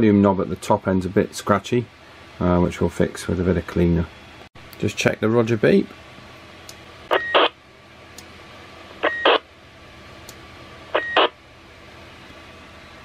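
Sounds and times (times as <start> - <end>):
radio roger beep: 7.1 - 7.5, 9.0 - 9.4, 11.0 - 11.4
radio static bursts: 7.1 - 7.6, 9.0 - 9.4, 11.0 - 11.4.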